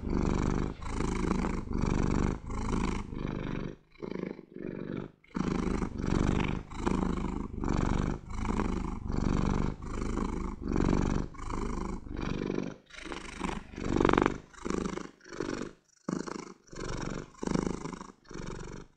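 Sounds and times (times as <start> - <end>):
cat purring: 0.0 - 18.9.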